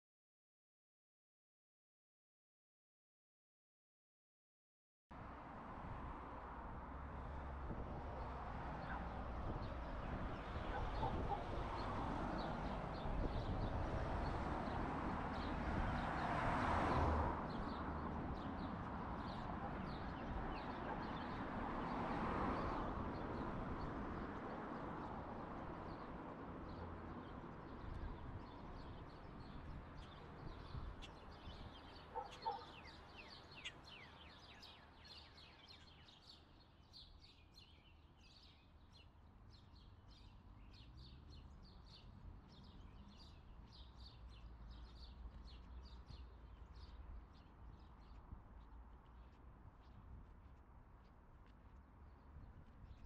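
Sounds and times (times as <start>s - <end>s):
road traffic rumble: 5.2s - 34.3s
small birds chirping: 17.5s - 22.0s, 25.8s - 53.0s.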